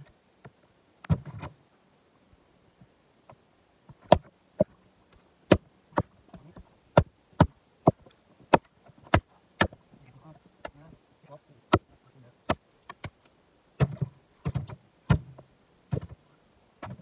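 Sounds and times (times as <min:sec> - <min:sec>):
maul splitting wood knocks: 0:03.9 - 0:04.7, 0:05.5 - 0:09.8, 0:13.8 - 0:16.2, 0:16.8 - 0:17.0.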